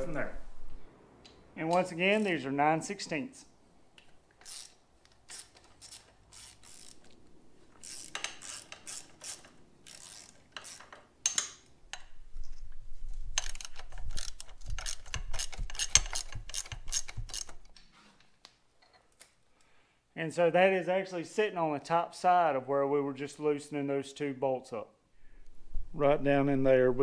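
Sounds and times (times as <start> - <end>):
socket ratchet clicking: 4.0 - 7.2, 7.8 - 12.1, 13.4 - 17.7.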